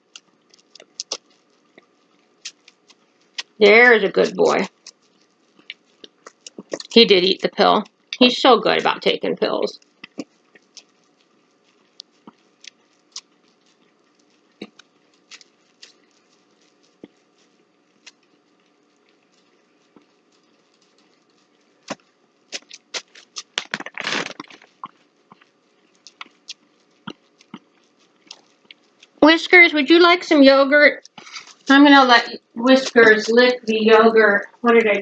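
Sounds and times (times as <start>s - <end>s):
plastic rustling: 9.8s - 29.2s, 31.0s - 35.0s.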